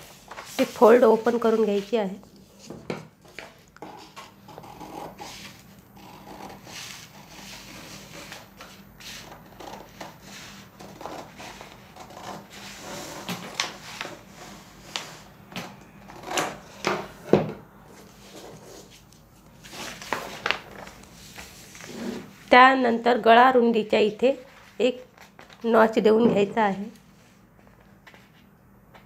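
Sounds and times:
paper rustling: 0.0s - 4.4s, 18.0s - 22.4s, 24.4s - 26.0s.

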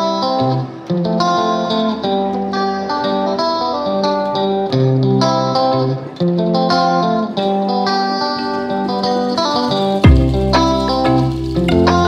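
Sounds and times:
plucked guitar melody: 0.0s - 12.0s
low sustained bass notes: 10.0s - 12.0s.

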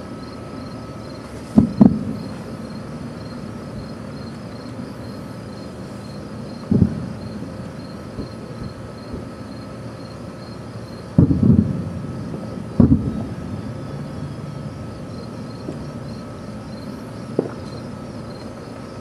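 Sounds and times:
crickets chirping: 0.0s - 19.0s
distant fireworks booming: 1.5s - 2.8s, 6.5s - 9.6s, 11.0s - 18.0s.

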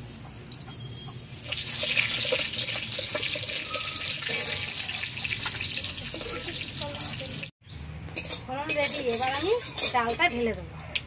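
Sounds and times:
seeds sizzling and popping in oil: 1.4s - 7.5s.

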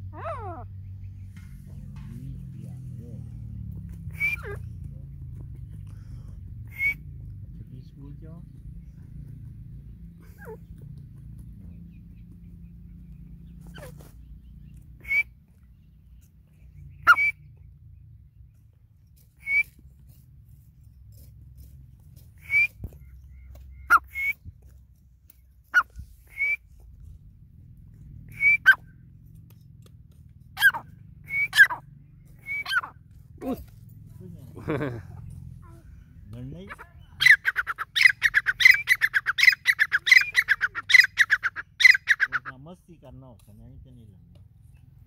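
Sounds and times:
bird whistled calls: 3.8s - 5.4s, 6.5s - 7.5s, 11.7s - 15.9s, 16.8s - 17.6s, 19.4s - 19.8s, 22.4s - 24.5s, 25.8s - 26.8s, 28.2s - 29.0s, 30.6s - 33.0s, 37.2s - 42.5s.

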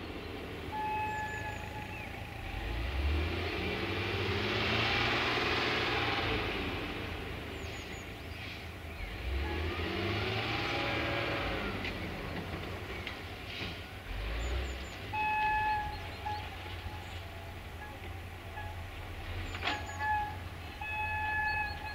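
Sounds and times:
distant locomotive rumbling: 0.0s - 21.9s
train horn blast: 0.7s - 2.8s, 9.2s - 11.8s, 15.1s - 21.9s.

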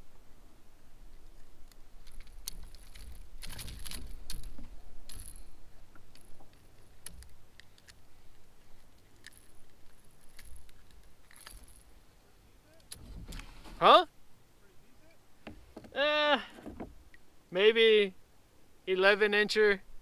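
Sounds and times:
light clicks and metallic rattles: 1.1s - 12.0s.

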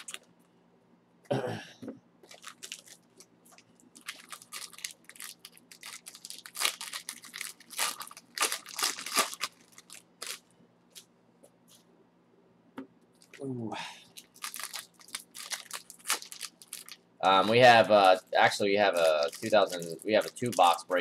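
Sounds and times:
foil wrapper crinkling: 0.0s - 0.3s, 2.2s - 10.5s, 14.1s - 21.0s.

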